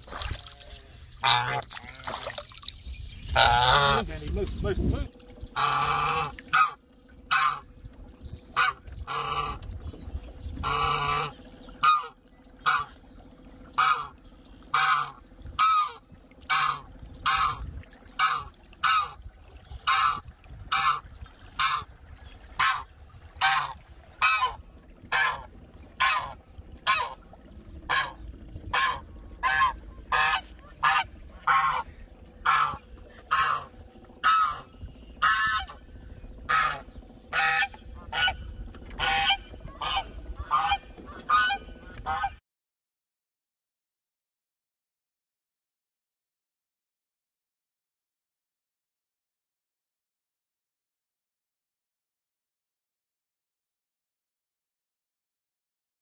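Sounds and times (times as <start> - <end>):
goose honking: 1.2 - 2.2, 3.4 - 4.1, 5.5 - 7.7, 8.5 - 9.6, 10.6 - 13.0, 13.7 - 17.6, 18.2 - 19.2, 19.8 - 22.0, 22.6 - 27.2, 27.9 - 35.8, 36.5 - 42.4.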